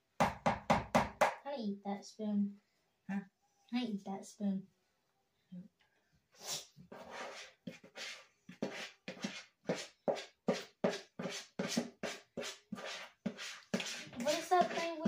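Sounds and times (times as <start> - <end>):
spatula scraping mixing bowl: 6.9 - 15.0.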